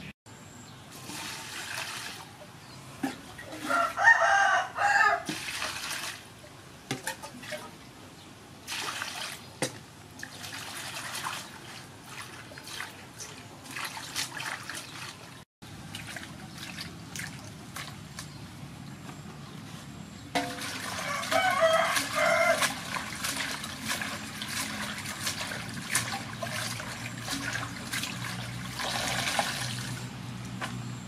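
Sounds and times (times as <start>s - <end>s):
water splashing in metal basin: 0.9s - 2.4s, 5.2s - 6.3s, 8.7s - 18.3s, 20.4s - 30.1s
rooster crowing: 3.6s - 5.3s, 20.9s - 22.8s.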